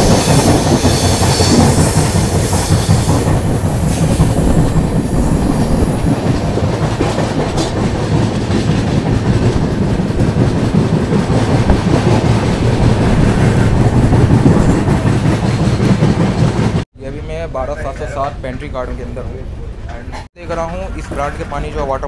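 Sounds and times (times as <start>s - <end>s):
train rumbling on track: 0.0s - 22.0s.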